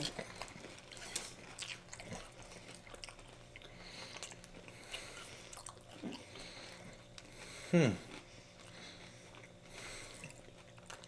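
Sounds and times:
faint crunching and chewing: 0.0 - 11.0
person humming: 7.6 - 8.2.

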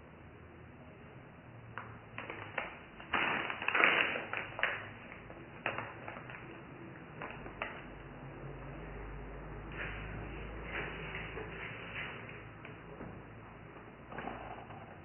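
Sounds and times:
plastic bag crinkling: 2.1 - 7.9.

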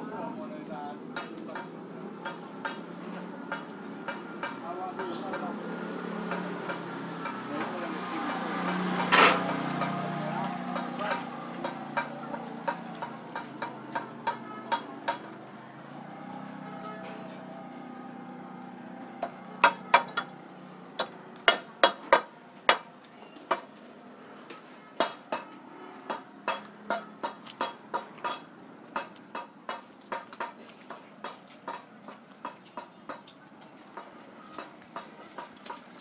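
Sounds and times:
market background noise: 0.0 - 36.0
sharp knocks: 19.2 - 20.3.

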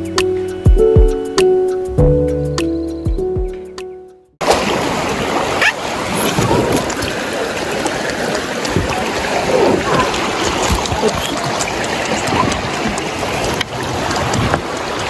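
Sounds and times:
river water rushing: 4.4 - 15.0
faint voices: 7.5 - 13.2.

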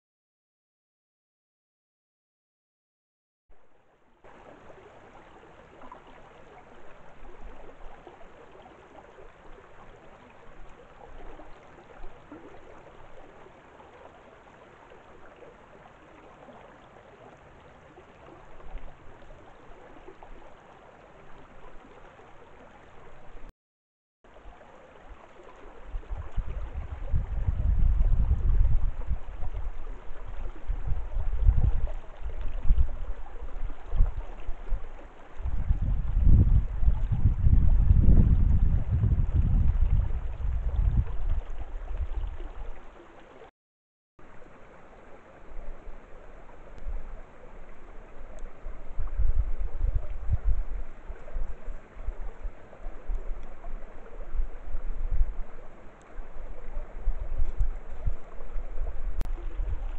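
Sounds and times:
flowing water: 3.5 - 23.5, 24.2 - 43.5, 44.2 - 59.9
wind buffeting microphone: 25.8 - 42.8, 48.3 - 55.6, 56.2 - 59.9.

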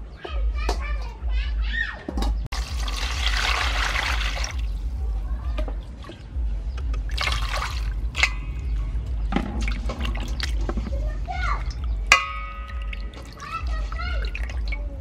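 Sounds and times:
water splashing in metal bowl: 2.5 - 5.0, 5.6 - 15.0
low hum: 2.5 - 15.0
water rushing: 7.0 - 8.4.

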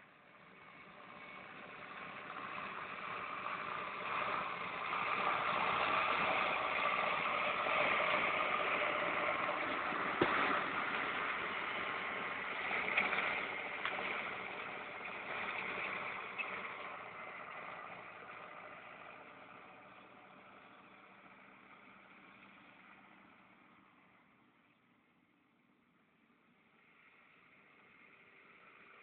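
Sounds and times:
tractor engine running: 0.2 - 24.3.

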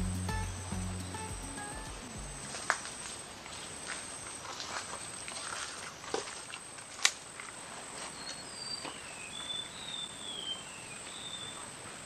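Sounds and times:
high thin whine: 0.0 - 3.1
outdoor background hiss: 0.0 - 12.0
bird whistling: 8.2 - 11.6.

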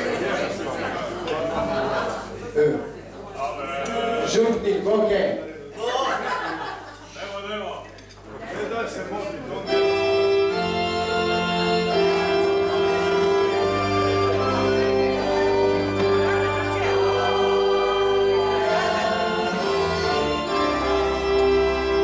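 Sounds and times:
organ playing sustained chords: 9.6 - 22.0.

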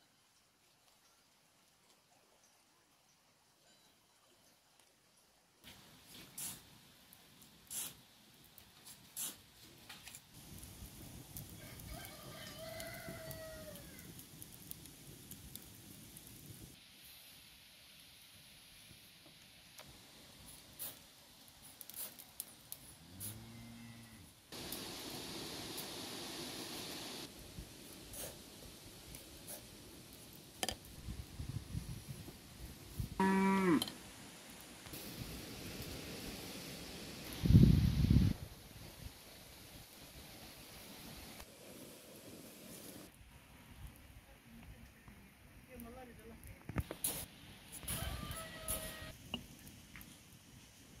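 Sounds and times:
stick fire crackling: 5.6 - 16.8, 18.8 - 23.3, 24.5 - 33.2, 33.8 - 51.0
rooster crowing: 11.6 - 14.1, 47.8 - 49.2
cow mooing: 33.2 - 33.9.

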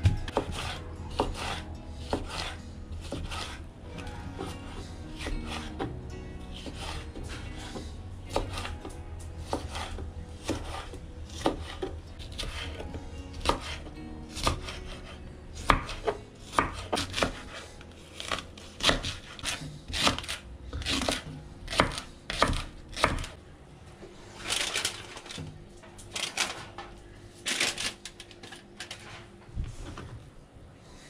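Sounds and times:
knife chopping on wooden board: 0.0 - 3.6, 6.6 - 12.8, 13.4 - 17.6, 18.2 - 23.3.

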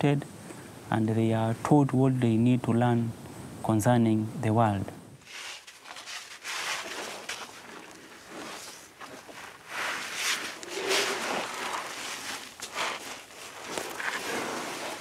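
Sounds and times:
elephants shuffling and scuffing: 5.2 - 15.0.

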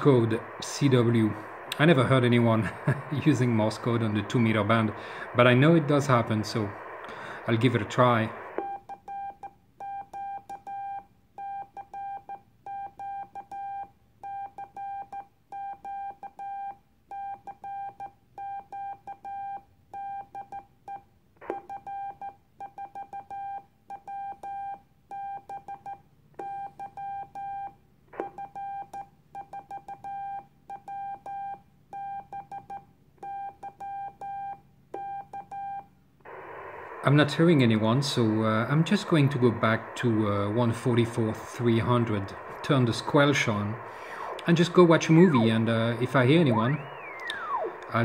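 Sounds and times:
morse code beeps: 8.4 - 35.9, 45.0 - 48.0.

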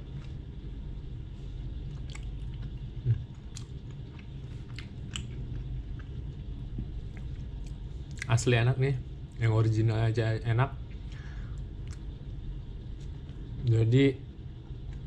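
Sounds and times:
man chewing bread: 0.0 - 8.3, 10.8 - 13.6
steady low hum: 0.0 - 15.0.

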